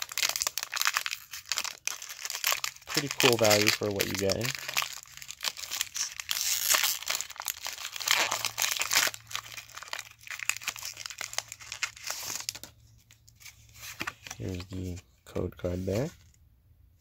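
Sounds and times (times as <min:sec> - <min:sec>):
foil wrapper tearing and crinkling: 0:00.0 - 0:12.7.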